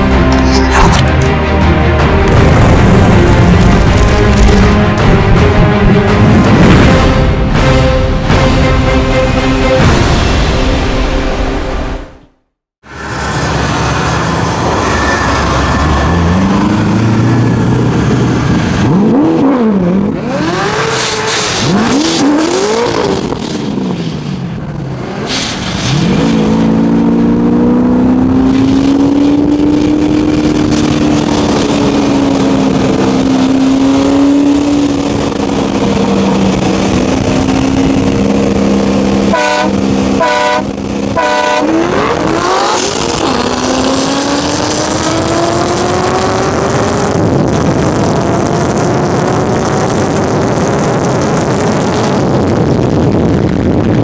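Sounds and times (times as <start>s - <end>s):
car engines revving: 0.0s - 9.8s, 12.9s - 54.0s
car horn honks: 39.3s - 42.1s.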